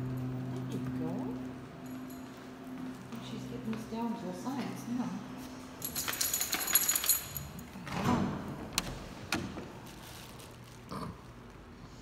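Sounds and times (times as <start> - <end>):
small metal pieces jingling: 5.8 - 7.6.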